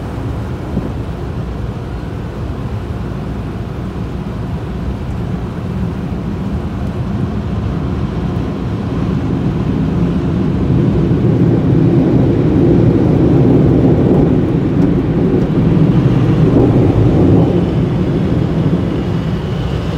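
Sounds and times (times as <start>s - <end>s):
car wash machinery rumble: 0.0s - 19.9s.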